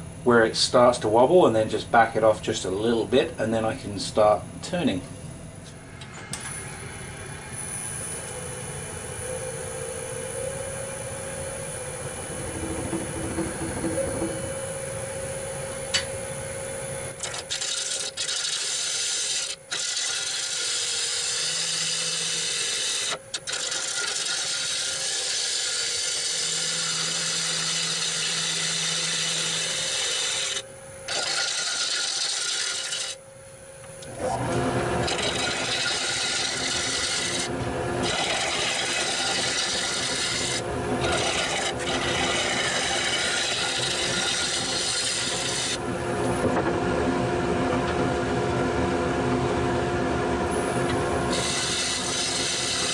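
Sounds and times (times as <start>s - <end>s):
lathe humming: 0.0s - 52.9s
gouge scraping spinning wood: 11.5s - 16.1s, 16.7s - 33.2s, 34.1s - 46.6s, 50.5s - 52.9s.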